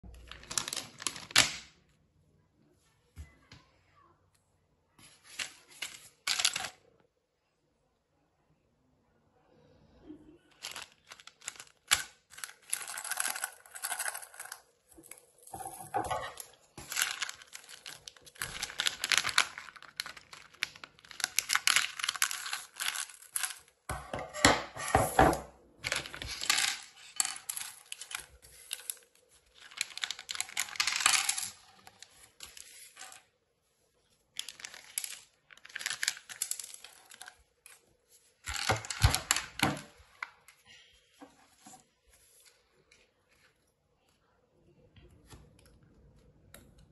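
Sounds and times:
plastic parts rattling: 0:00.1 - 0:01.6, 0:05.3 - 0:06.8, 0:10.5 - 0:23.8, 0:25.8 - 0:33.3, 0:34.3 - 0:37.8, 0:38.4 - 0:40.2
plastic bag rustling and tearing: 0:00.2 - 0:01.5, 0:10.6 - 0:23.8, 0:25.9 - 0:33.3, 0:34.3 - 0:40.2.

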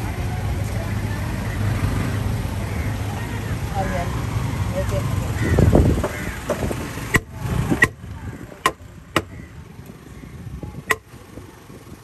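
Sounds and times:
murmur of voices: 0:00.0 - 0:12.0.

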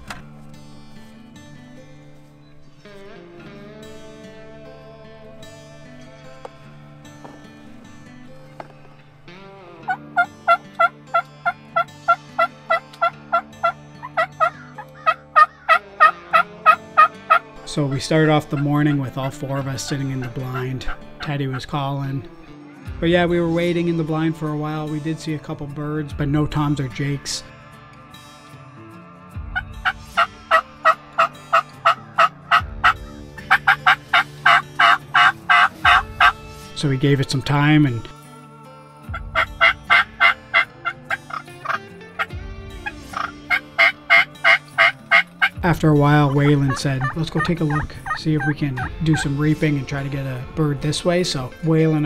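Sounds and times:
turkey yelping: 0:09.9 - 0:17.4, 0:18.5 - 0:21.0, 0:29.6 - 0:36.4, 0:39.1 - 0:45.6, 0:46.2 - 0:49.3.

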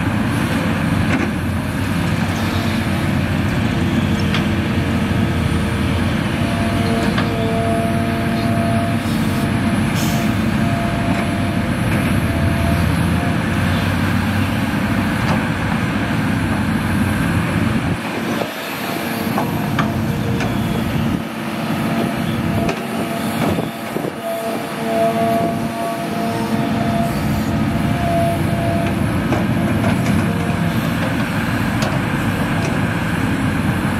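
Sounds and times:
excavator diesel engine: 0:00.0 - 0:33.9.

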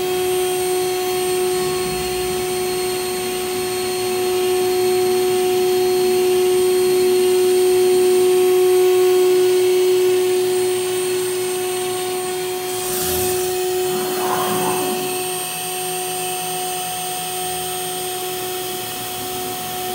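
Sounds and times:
router spindle whine: 0:09.9 - 0:16.5
low hum: 0:12.6 - 0:16.1
rushing air: 0:12.7 - 0:15.6
sliding tones of moving head: 0:12.8 - 0:15.5.

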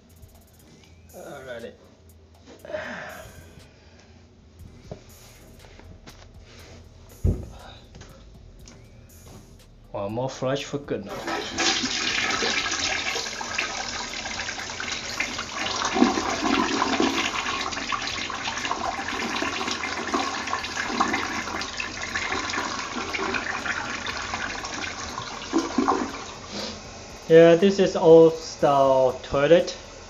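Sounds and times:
toilet flushing: 0:11.1 - 0:30.0.

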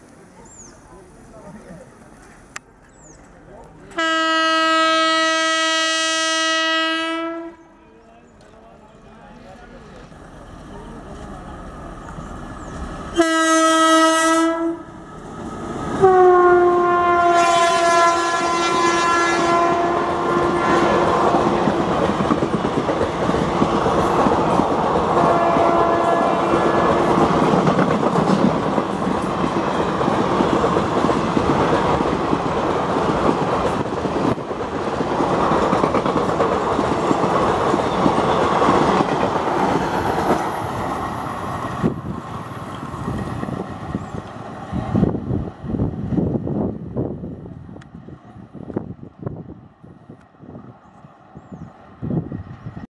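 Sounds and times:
train horn blasts: 0:04.0 - 0:07.8, 0:13.1 - 0:15.0, 0:16.0 - 0:21.6, 0:25.1 - 0:27.4
locomotive rumble: 0:06.7 - 0:52.9
train wheels clickety-clack: 0:20.4 - 0:45.0.

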